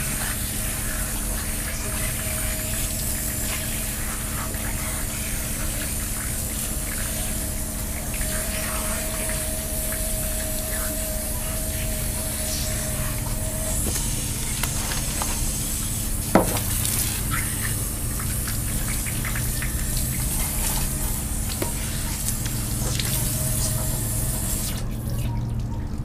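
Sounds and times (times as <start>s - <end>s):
water splashing from hose: 0.0s - 25.6s
faint steady whistle: 7.2s - 14.5s.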